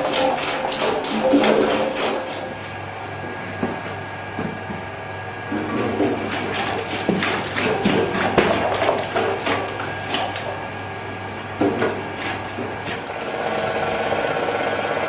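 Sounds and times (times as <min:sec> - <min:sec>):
potatoes clacking in cutter: 0:00.0 - 0:02.5.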